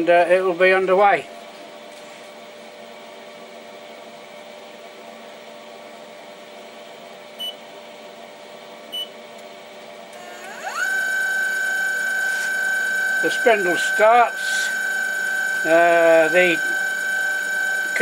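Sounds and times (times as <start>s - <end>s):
spindle motor whine: 10.1s - 18.0s.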